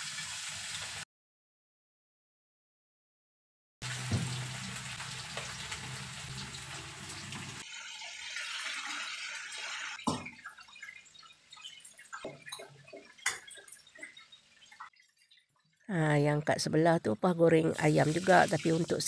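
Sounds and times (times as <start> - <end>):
chicken frying in hot oil: 0.0 - 1.0, 3.8 - 15.8, 17.6 - 19.0
oil popping and crackling: 3.8 - 7.7, 9.5 - 15.8.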